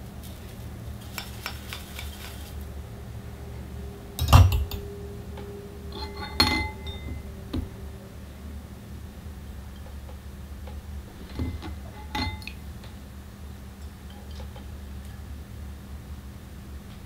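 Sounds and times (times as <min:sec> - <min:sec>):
low steady hum: 0:00.0 - 0:17.0
clink with ringing tone: 0:05.9 - 0:07.3, 0:11.4 - 0:12.5.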